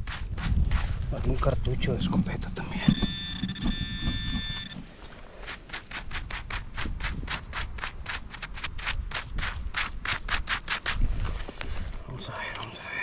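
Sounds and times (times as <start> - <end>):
scraping in dirt: 0.0 - 12.6
metal detector tone: 2.6 - 4.9.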